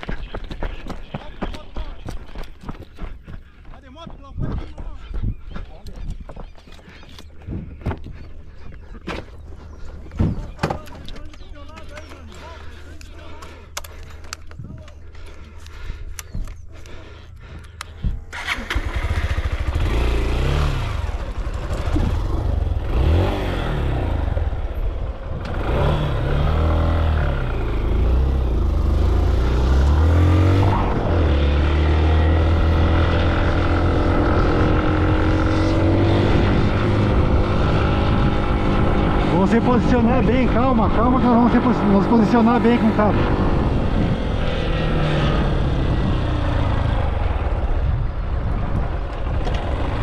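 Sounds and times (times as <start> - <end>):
sharp clicks: 10.6 - 18.6
motorcycle engine revving: 18.3 - 50.0.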